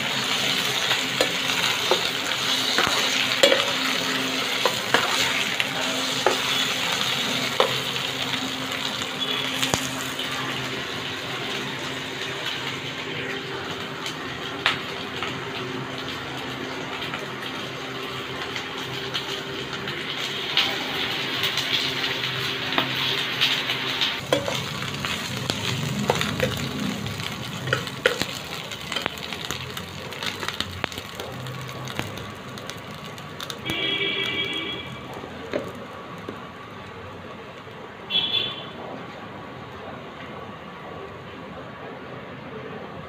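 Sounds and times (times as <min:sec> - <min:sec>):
onions sizzling in hot oil: 0:00.0 - 0:38.8.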